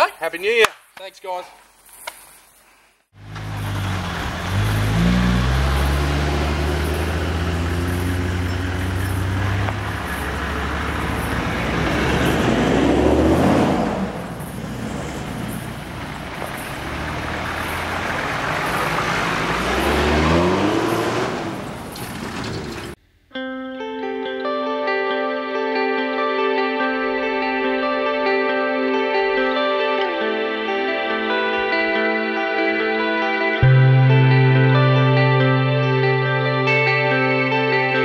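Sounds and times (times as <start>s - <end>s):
tyres rolling over sand: 1.6s - 23.0s
vehicles driving past: 3.2s - 23.0s.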